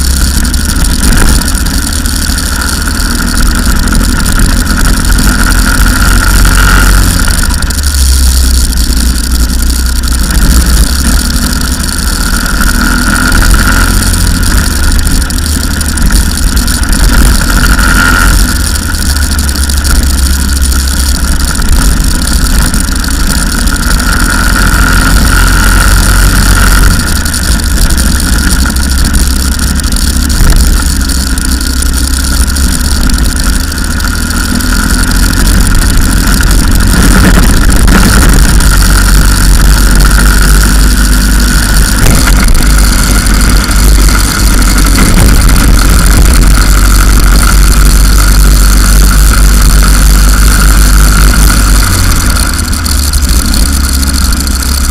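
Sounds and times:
go-kart engine running flat out: 0.0 - 54.9.

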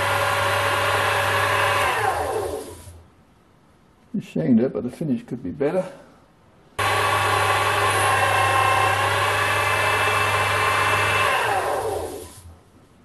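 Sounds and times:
lathe motor hum and whine: 0.0 - 3.0, 6.8 - 12.5.

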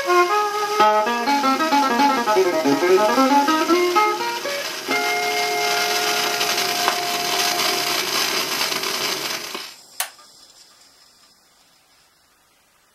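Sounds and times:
record surface hiss: 0.0 - 12.9
sharp click: 10.0 - 10.3.

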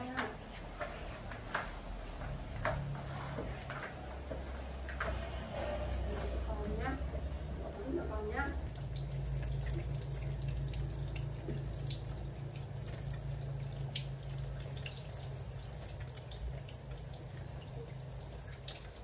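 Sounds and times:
steady low hum: 4.0 - 19.0
shower water spraying and pattering: 8.7 - 19.0.

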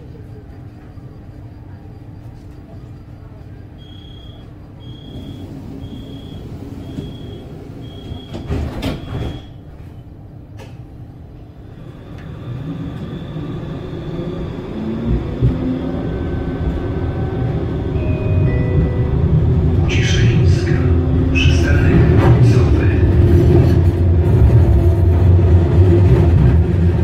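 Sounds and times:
tram drive whine: 0.0 - 27.0
tram door warning beeps: 2.8 - 10.0, 12.0 - 22.8
doors shutting with heavy knock: 6.9 - 9.6.

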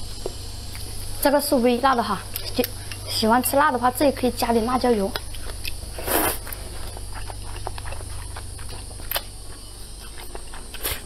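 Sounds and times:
person slurping noodles: 6.0 - 6.5.

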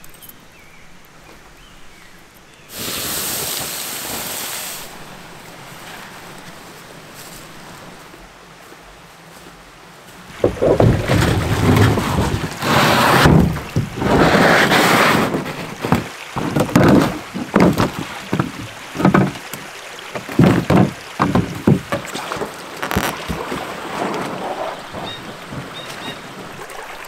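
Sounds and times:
water splashing and sloshing: 2.7 - 8.3, 10.1 - 27.0
canoe hull knocking and scraping: 10.3 - 26.8.

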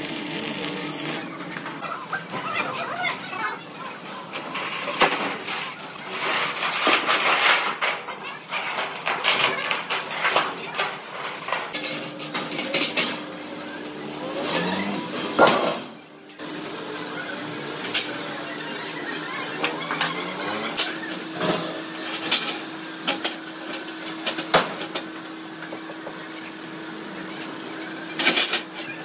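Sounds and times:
steady machine hum: 0.0 - 3.7.

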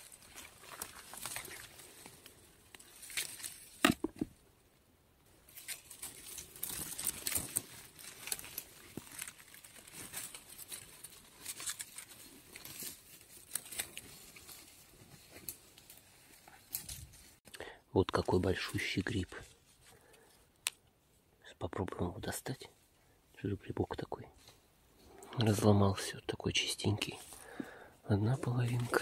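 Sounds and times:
dry leaves rustling and crackling: 0.0 - 4.1, 5.3 - 17.4, 28.5 - 29.0
twig cracking: 0.0 - 4.4, 5.5 - 17.3.

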